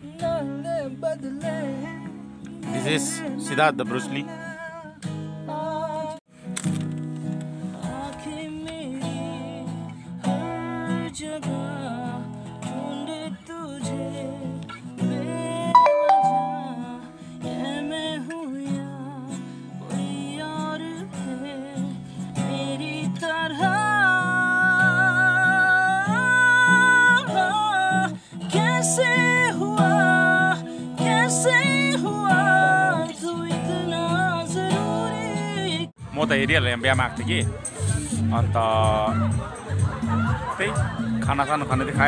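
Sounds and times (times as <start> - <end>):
acoustic guitar strumming: 13.9 - 20.3, 21.2 - 35.9
person singing: 15.7 - 17.8.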